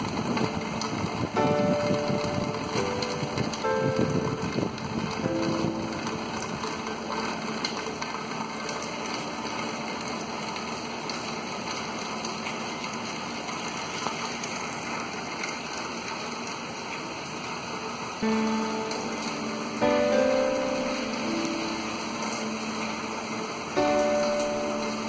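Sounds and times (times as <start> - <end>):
water drops ticking: 0.0 - 13.1, 18.2 - 25.0
rain falling on a pond: 0.0 - 25.0.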